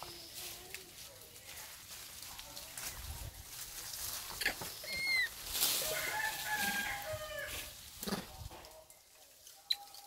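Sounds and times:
rooster crowing: 5.8 - 7.7.

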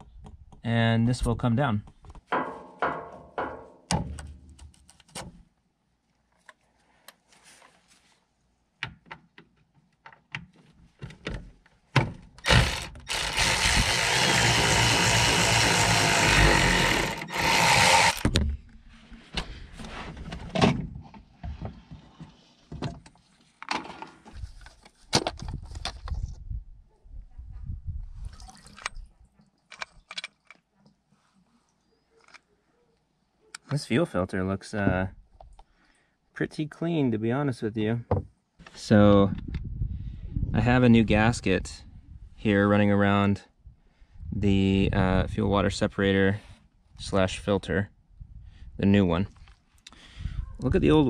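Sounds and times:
cordless power tool running: 12.5 - 18.3
clicks and knocks of tools: 29.7 - 30.6.

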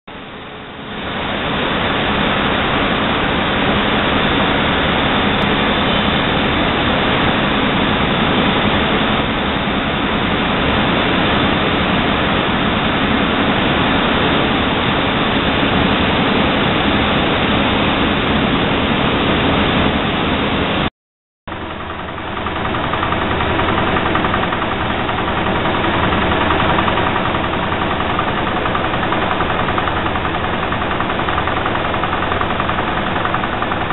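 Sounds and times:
needle-punching loom din: 21.5 - 33.9.

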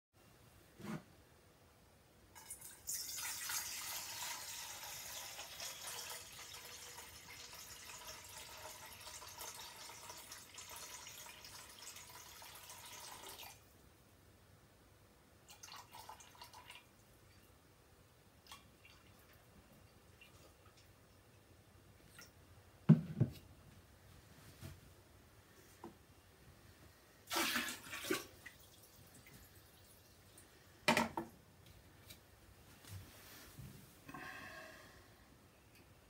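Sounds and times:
water pouring from a jug: 2.4 - 13.6, 15.5 - 16.9, 27.3 - 30.4
water trickling and dripping: 2.4 - 13.6, 15.5 - 17.5.

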